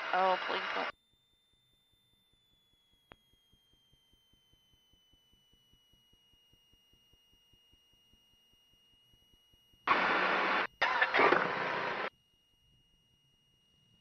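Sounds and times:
radio static bursts: 0.0 - 0.9, 9.9 - 12.1
faint steady high tone: 0.0 - 9.8, 12.1 - 14.0.

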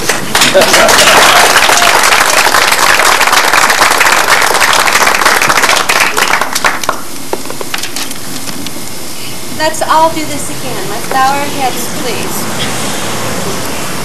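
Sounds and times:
audience applause: 0.0 - 7.9.

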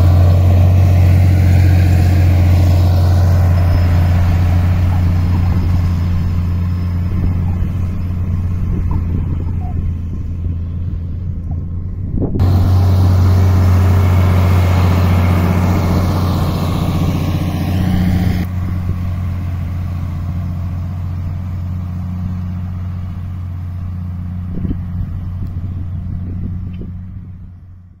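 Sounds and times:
tractor diesel engine droning: 0.0 - 28.0
loud rushing noise: 12.3 - 19.0.

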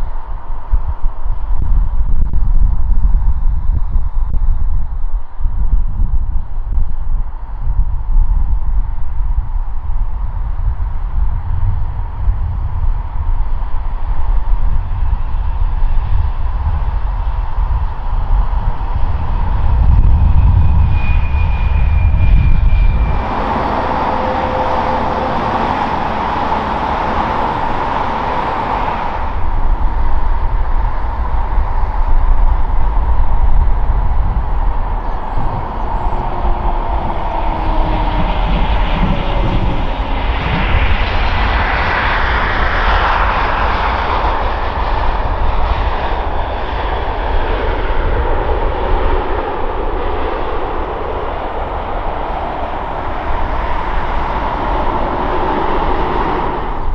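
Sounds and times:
jet engine whine and rumble: 0.0 - 56.9
broad rush of jet noise: 13.4 - 56.9.

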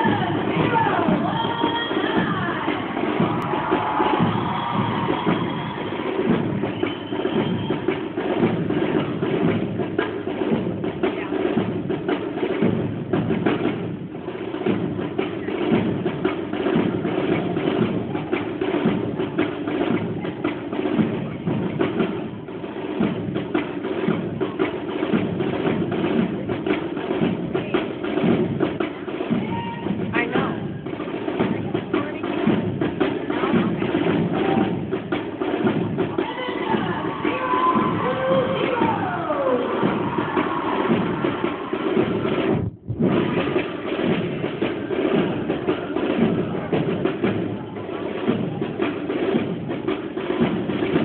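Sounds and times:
marching drum beats: 0.0 - 51.0
military band playing a march: 0.0 - 51.0.

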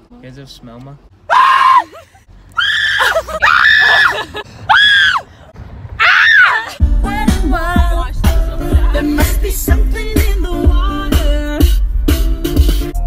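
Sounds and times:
women shrieking playfully: 1.3 - 5.3, 6.0 - 6.8.

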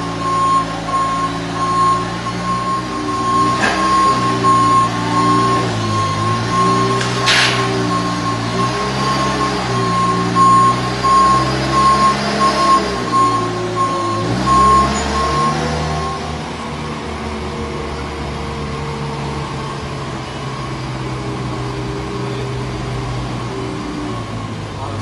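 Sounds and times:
forklift warning beeper: 0.0 - 16.9
forklift engine running: 0.0 - 25.0.

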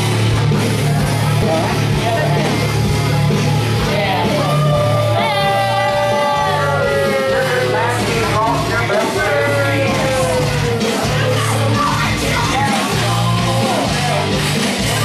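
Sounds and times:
loud rock music with singing: 0.0 - 15.0.

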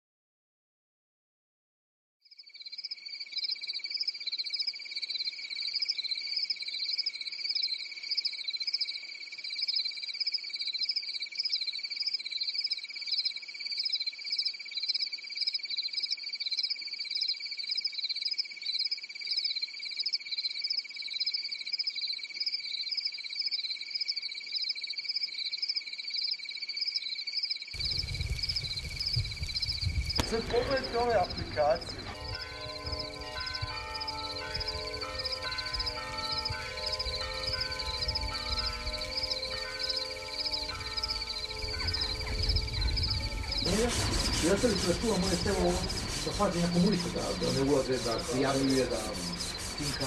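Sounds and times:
insects trilling: 2.3 - 50.0
pulsing insect buzz: 40.4 - 50.0.

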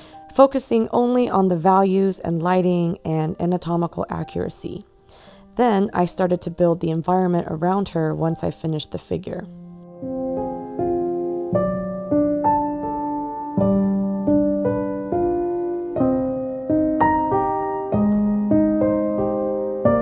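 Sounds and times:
gentle solo piano melody: 9.8 - 20.0.

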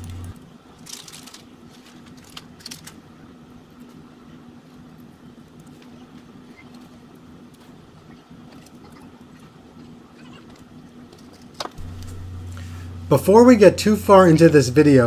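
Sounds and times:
small ticks and rustles: 0.0 - 11.8
steady low hum: 0.0 - 15.0.

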